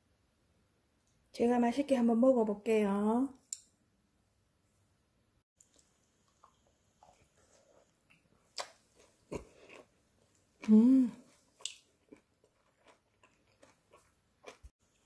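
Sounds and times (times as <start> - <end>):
woman chewing: 5.6 - 15.0
woman humming: 10.6 - 11.2.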